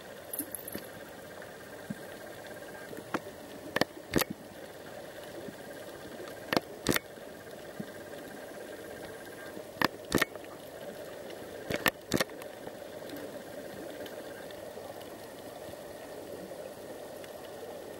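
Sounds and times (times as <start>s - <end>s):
steady low underwater hiss: 0.0s - 17.9s
sharp clicks: 3.1s - 4.3s, 6.5s - 7.1s, 9.8s - 10.4s, 11.7s - 12.4s.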